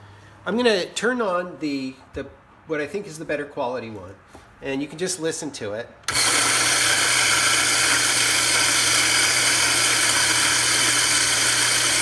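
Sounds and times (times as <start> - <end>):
electric coffee grinder whirring: 6.1 - 12.0.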